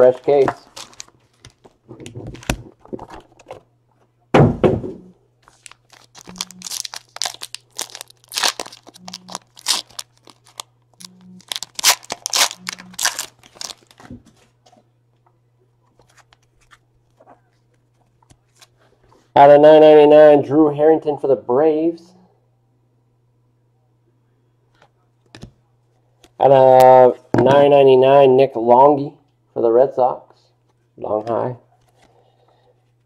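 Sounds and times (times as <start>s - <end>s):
wrapper crinkling and tearing: 0.6s - 1.7s, 5.4s - 10.7s, 11.4s - 14.1s
thump: 4.4s - 5.1s.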